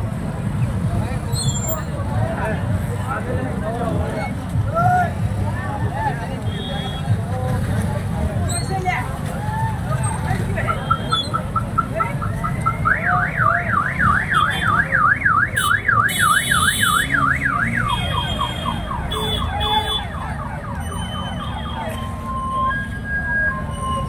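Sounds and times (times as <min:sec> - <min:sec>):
crowd and traffic rumble: 0:00.0 - 0:24.0
car alarm cycling tones: 0:10.7 - 0:19.2.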